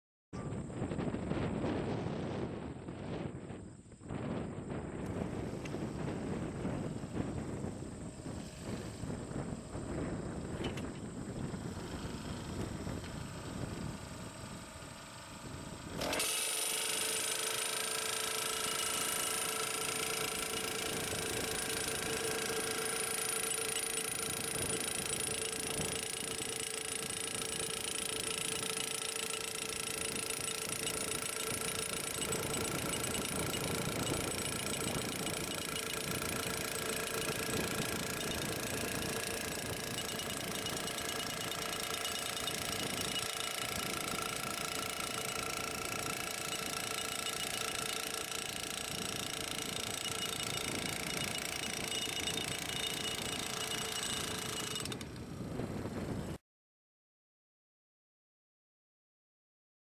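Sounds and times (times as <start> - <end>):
gas-powered post driver pounding: 16.0 - 55.3.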